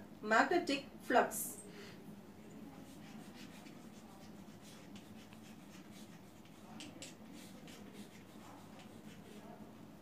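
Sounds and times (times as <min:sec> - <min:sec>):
chalk scratching on blackboard: 0:02.7 - 0:09.6.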